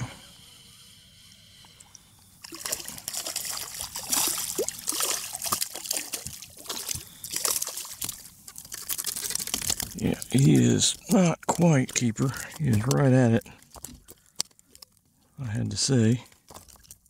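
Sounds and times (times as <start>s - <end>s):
water dripping: 1.6s - 15.0s
fish splashing in water: 2.4s - 10.4s.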